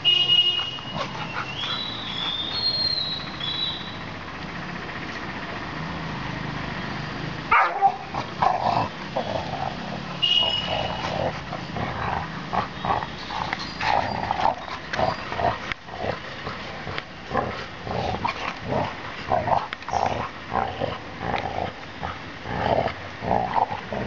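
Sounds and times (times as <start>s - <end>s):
dogs growling: 0.8s - 3.0s, 7.5s - 24.0s.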